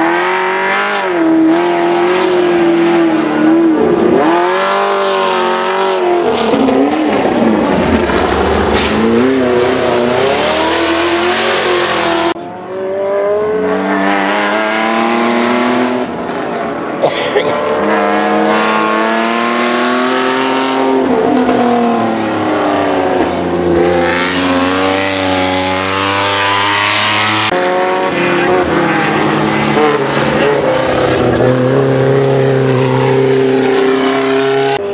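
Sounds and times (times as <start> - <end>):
race car engines revving: 0.0 - 34.9
sharp pop: 8.7 - 9.0.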